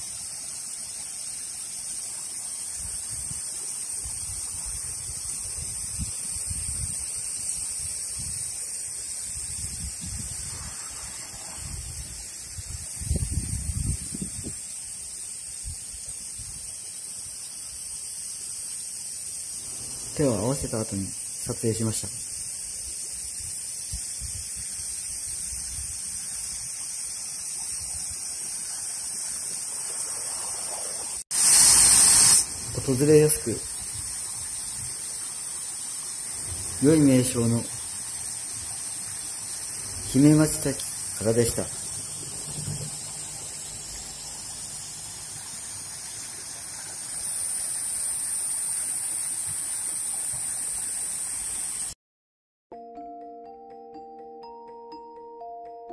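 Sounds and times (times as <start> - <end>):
waterfall and stream rushing: 19.6 - 21.6, 31.8 - 52.0.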